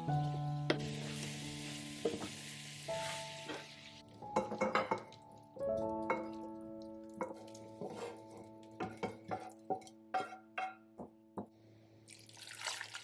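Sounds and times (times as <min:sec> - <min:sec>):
meat and vegetables sizzling in pan: 0:00.0 - 0:05.2
background music with held notes: 0:00.0 - 0:12.0
spatula knocking and scraping pan: 0:07.2 - 0:11.1.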